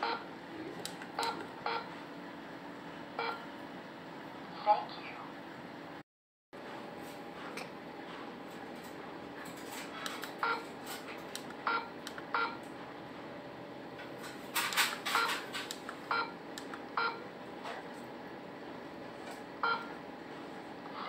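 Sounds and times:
keypad beeping: 1.2 - 1.9, 10.2 - 10.7, 11.7 - 12.6, 15.1 - 15.4, 16.1 - 16.4, 17.0 - 17.2, 19.6 - 19.9.

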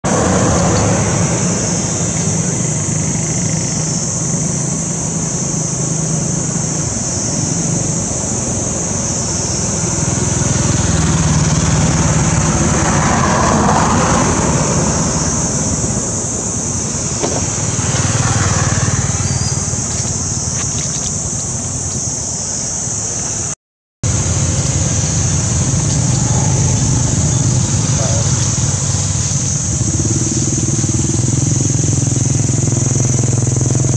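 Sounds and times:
high-pitched hiss: 14.8 - 33.9.

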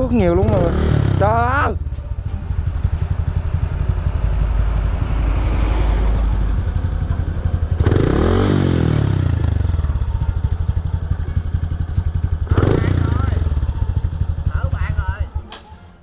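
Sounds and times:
motorcycle engine running: 0.0 - 15.5
higher engine note: 0.0 - 15.6.

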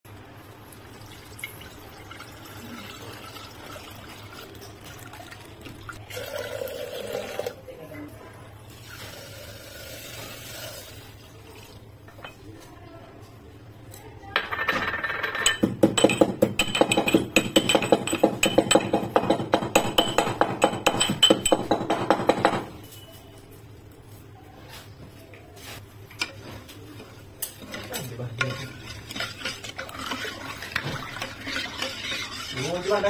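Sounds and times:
metal pestle pounding in mortar: 15.6 - 22.7.

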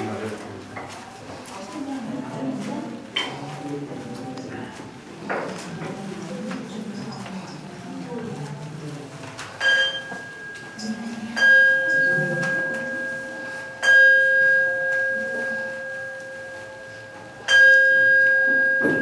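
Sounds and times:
bowl bell ringing: 9.6 - 19.0.

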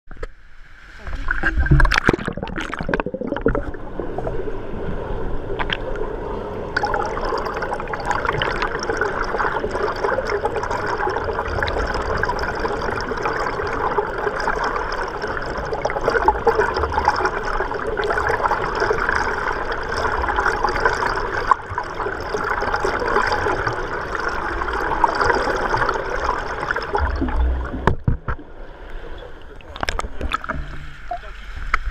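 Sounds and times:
muffled underwater rush: 0.1 - 31.9
swimming strokes underwater: 0.1 - 31.9
bubbles crackling: 1.0 - 4.4, 5.6 - 5.9, 6.8 - 28.4, 29.5 - 31.3.

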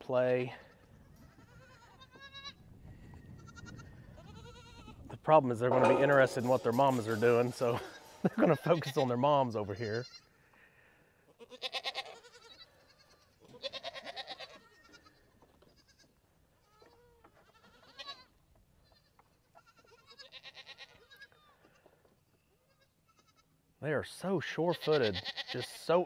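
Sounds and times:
goats bleating: 0.7 - 2.6, 3.4 - 5.0, 7.5 - 10.4, 11.3 - 21.9, 22.6 - 23.5, 24.6 - 25.7.

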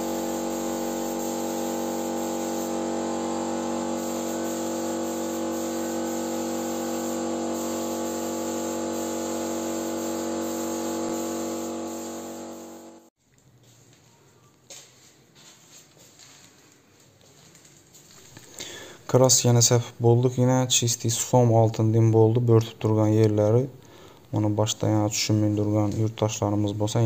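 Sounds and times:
paint spray rig motor hum: 0.0 - 13.1
spraying air hiss: 0.0 - 13.1.

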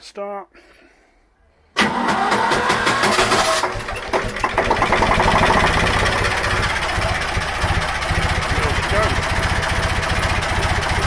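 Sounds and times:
diesel engine running: 1.8 - 11.0
electric starter cranking engine: 1.8 - 11.0.

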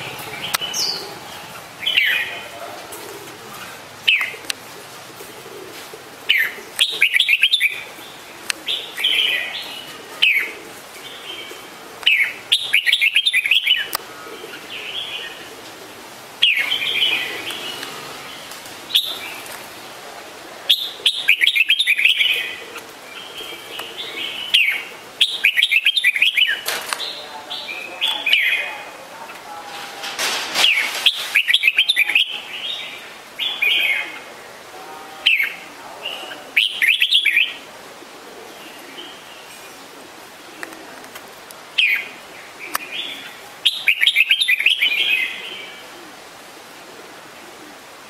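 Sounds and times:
bird chirping calls: 0.0 - 4.6, 6.3 - 15.5, 16.4 - 19.6, 20.7 - 29.4, 30.6 - 34.3, 35.2 - 37.6, 41.8 - 45.8.

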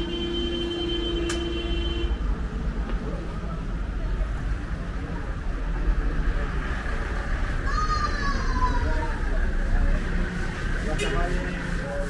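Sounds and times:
vehicle horn: 0.0 - 2.2
street traffic rumble: 0.0 - 12.0.

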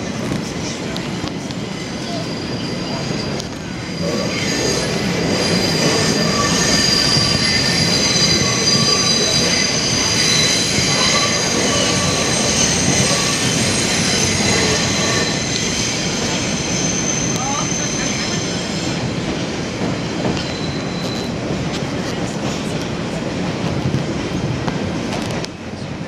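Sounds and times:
subway train wheels rumbling: 0.0 - 26.0
high-pitched wheel squealing: 1.8 - 18.9.

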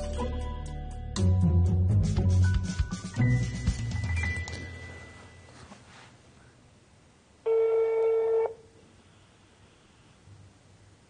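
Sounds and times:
telephone ringback beep: 7.5 - 8.6.

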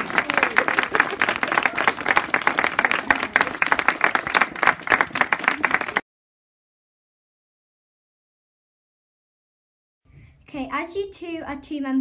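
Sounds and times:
people applauding: 0.0 - 6.0.

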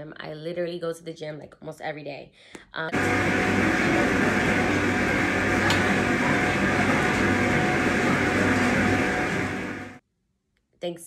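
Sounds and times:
machines whirring and humming: 2.9 - 10.0.

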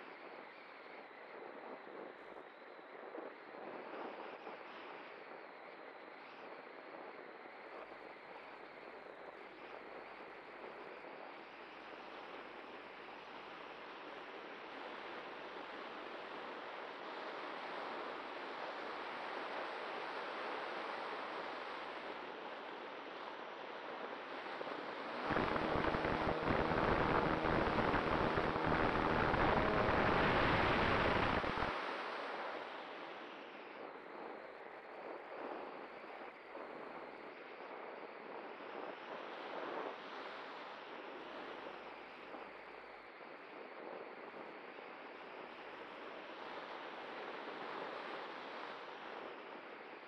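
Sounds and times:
airflow rushing past: 24.6 - 31.8.

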